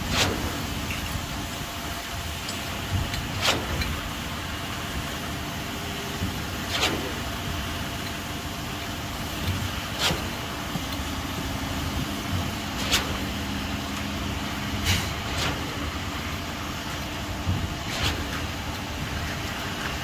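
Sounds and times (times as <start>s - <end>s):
short sharp knocks or scrapes: 17.9s - 18.4s.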